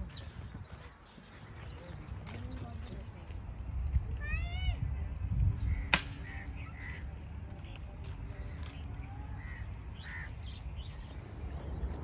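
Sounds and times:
birds calling: 0:05.0 - 0:12.0.

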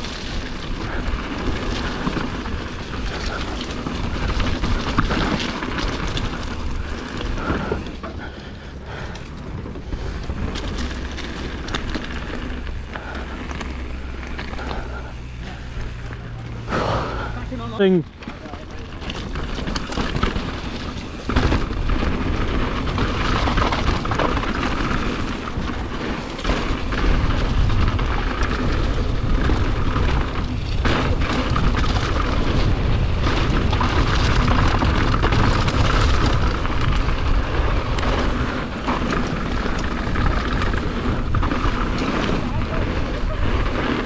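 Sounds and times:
bike rattling and knocking: 0:00.0 - 0:44.0
bike tyres crunching over gravel: 0:00.0 - 0:44.0
wind buffeting microphone: 0:19.2 - 0:44.0.

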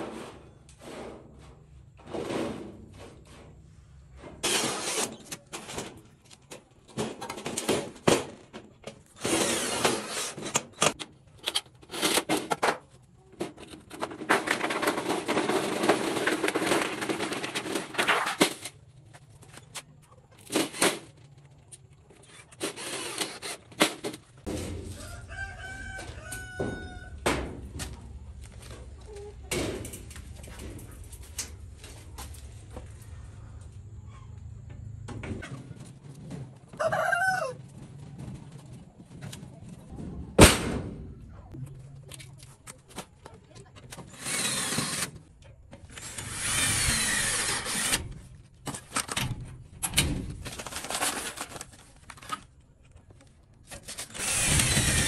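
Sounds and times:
metal sheet panel knocks and scrapes: 0:00.0 - 0:03.6, 0:23.8 - 0:25.0.

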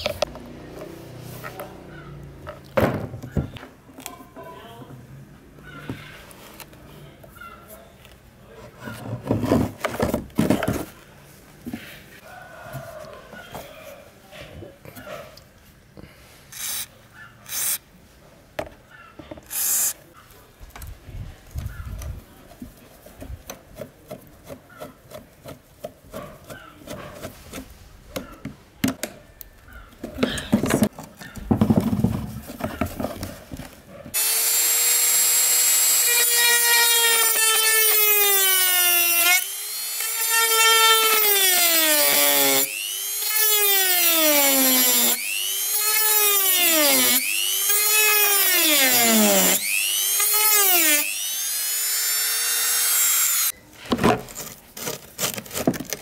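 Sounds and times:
rotary tool cutting metal: 0:16.5 - 0:16.9, 0:17.5 - 0:17.8, 0:19.4 - 0:20.0, 0:34.1 - 0:53.5.

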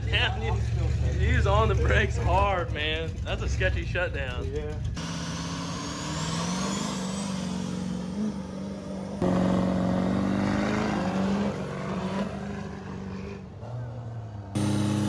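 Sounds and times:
diesel truck engines launching: 0:04.8 - 0:15.0.

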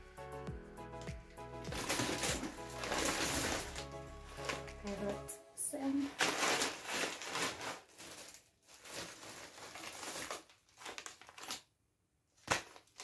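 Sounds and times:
plastic packets crinkling: 0:01.6 - 0:05.3, 0:05.9 - 0:11.7, 0:12.4 - 0:13.0.

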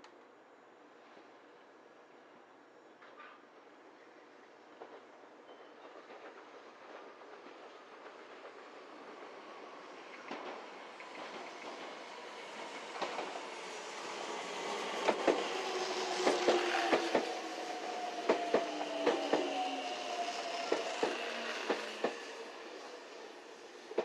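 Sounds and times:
train rumble: 0:04.7 - 0:24.0
train wheels clacking over rail joints: 0:14.6 - 0:19.6, 0:20.5 - 0:22.3
train whine falling in pitch: 0:14.9 - 0:22.6.

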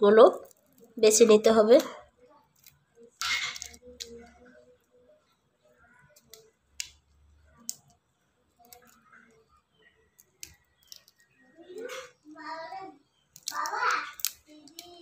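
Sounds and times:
shrimp shells cracking: 0:00.4 - 0:01.0, 0:02.5 - 0:04.1, 0:06.2 - 0:08.0, 0:08.6 - 0:09.1, 0:10.1 - 0:11.9, 0:13.2 - 0:15.0.

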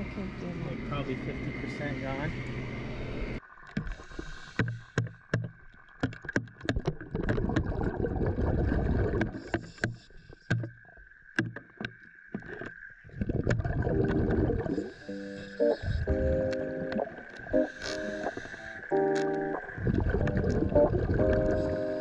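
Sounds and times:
faint steady whine: 0:00.0 - 0:03.4, 0:13.7 - 0:22.0
underwater exhaled bubbles: 0:06.6 - 0:10.4, 0:12.4 - 0:22.0.

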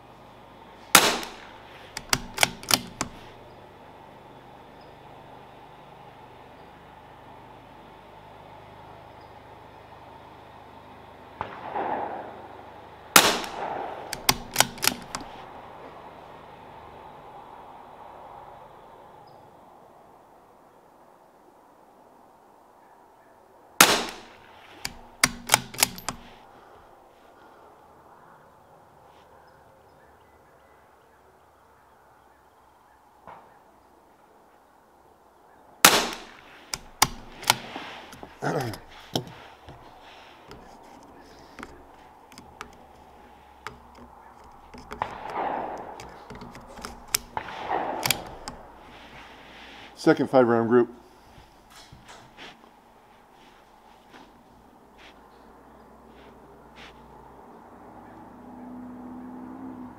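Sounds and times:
rifle bolt clicks: 0:00.9 - 0:03.4, 0:13.2 - 0:15.4, 0:23.8 - 0:26.4, 0:35.8 - 0:48.8
rifle shots: 0:00.9 - 0:03.4, 0:11.4 - 0:12.5, 0:13.1 - 0:15.3, 0:23.8 - 0:26.4, 0:35.8 - 0:39.0, 0:44.9 - 0:48.8.

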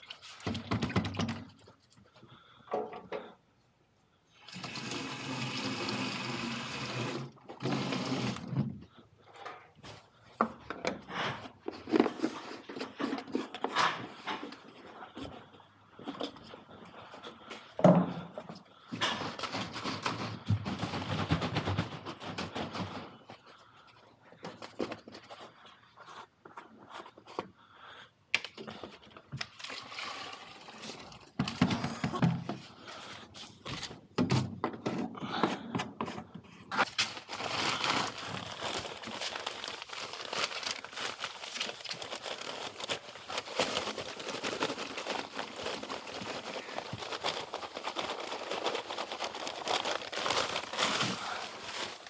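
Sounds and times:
plastic containers knocking and scraping: 0:00.0 - 0:01.8, 0:07.1 - 0:16.7, 0:17.6 - 0:23.6, 0:28.6 - 0:36.9
material pouring into bucket: 0:04.4 - 0:08.5, 0:29.6 - 0:31.4, 0:37.2 - 0:52.0.

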